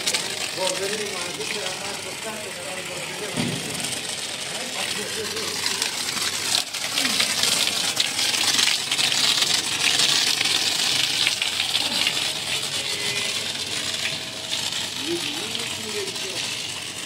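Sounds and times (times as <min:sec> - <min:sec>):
water jet hissing and spattering: 0:00.0 - 0:17.0.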